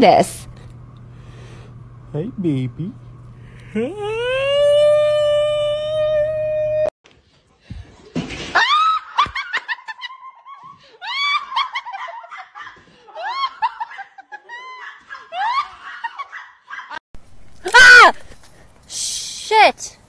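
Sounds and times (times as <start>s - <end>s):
person laughing in squeals: 3.8s - 6.9s, 8.6s - 17.0s.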